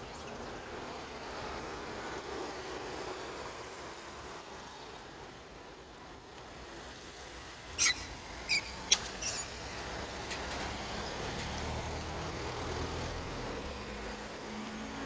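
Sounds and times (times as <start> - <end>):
road traffic: 0.0 - 15.0
passing vehicle rumble: 6.6 - 15.0
monkeys squeaking: 7.7 - 10.1.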